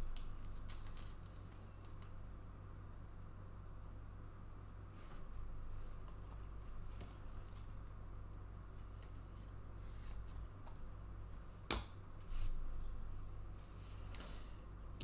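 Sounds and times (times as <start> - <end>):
trading cards rustling: 0.0 - 2.2
steady low hum: 0.0 - 15.0.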